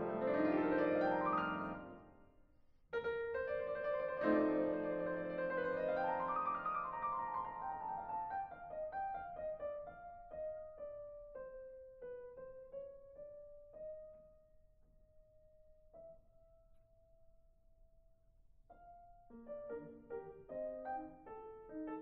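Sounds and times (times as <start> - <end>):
soft solo piano music: 0.0 - 2.1, 3.0 - 14.4, 18.7 - 22.0.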